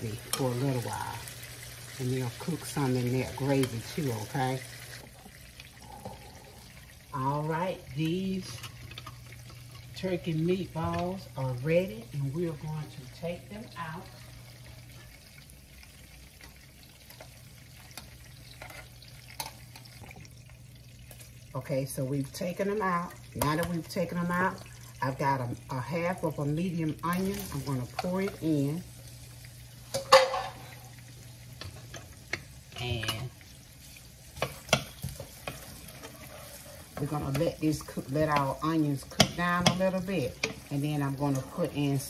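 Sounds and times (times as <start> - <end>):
meatballs sizzling in oil: 0.0 - 42.0
wooden spoon knocking on pan: 39.1 - 40.6.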